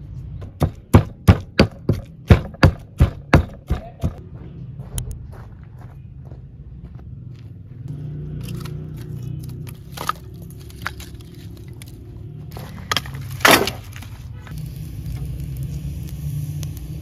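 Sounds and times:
firewood knocking and cracking: 0.4s - 4.2s, 12.8s - 14.0s
wood clattering: 12.8s - 14.1s.

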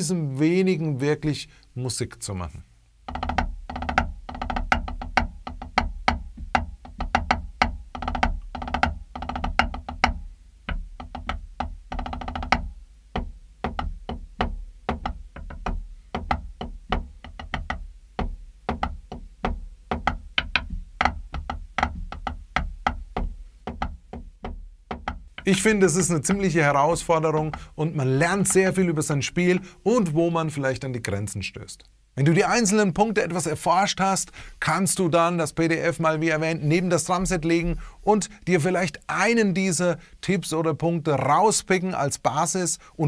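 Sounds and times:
drumsticks on practice pad: 3.0s - 29.7s.

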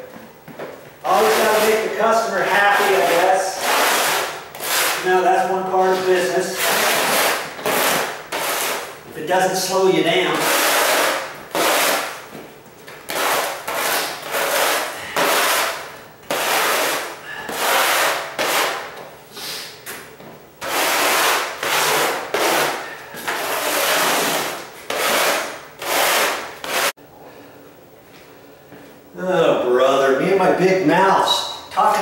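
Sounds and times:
tile scraping across gritty floor: 20.6s - 26.9s.

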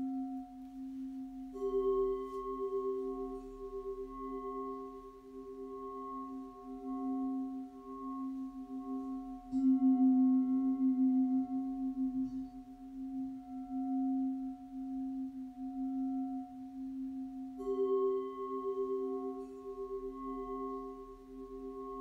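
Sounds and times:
singing bowls ringing: 0.0s - 22.0s
singing bowl strike: 1.5s - 15.0s.

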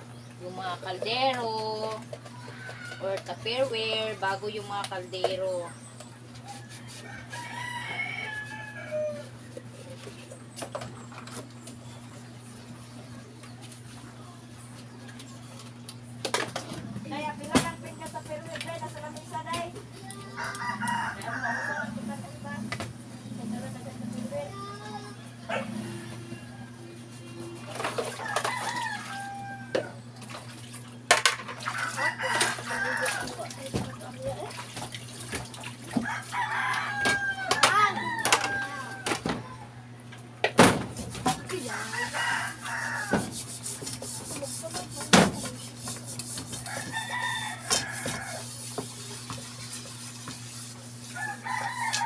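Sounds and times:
rooster crowing: 6.5s - 9.5s, 20.2s - 22.6s, 25.4s - 27.0s, 28.1s - 30.0s, 31.6s - 33.4s, 35.9s - 39.2s, 41.5s - 43.3s, 46.6s - 48.6s, 51.1s - 52.0s.

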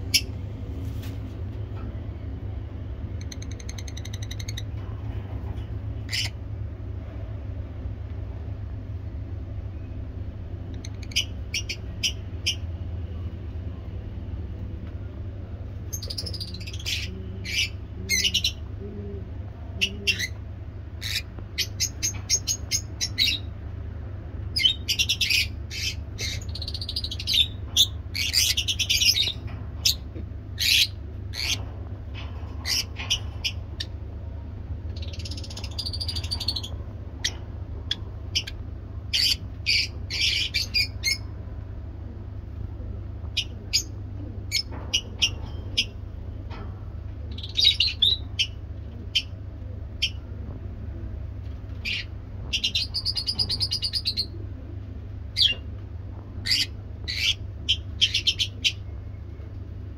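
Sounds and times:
lovebirds chirping and squawking: 0.0s - 1.2s, 3.0s - 4.8s, 5.5s - 6.5s, 10.7s - 12.8s, 15.8s - 23.6s, 24.5s - 34.0s, 34.8s - 41.4s, 43.2s - 46.0s, 47.3s - 50.3s, 51.7s - 54.5s, 55.3s - 55.7s, 56.4s - 59.2s
steady low hum: 0.0s - 59.9s.

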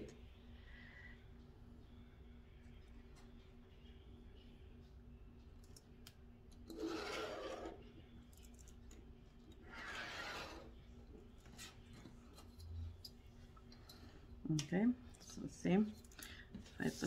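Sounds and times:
pen scratching on paper: 6.7s - 7.7s, 9.7s - 10.7s.

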